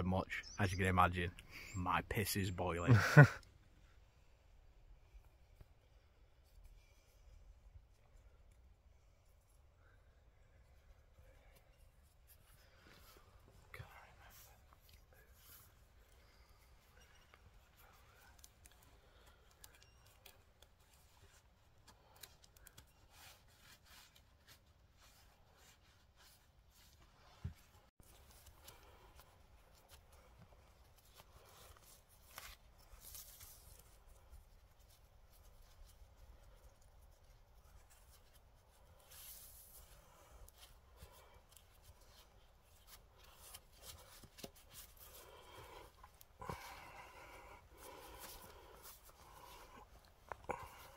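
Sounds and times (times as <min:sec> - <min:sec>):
cord rustling and scraping on poles: 0:10.6 - 0:50.9
small clicks of cord on bark: 0:14.7 - 0:27.0, 0:27.6 - 0:46.8.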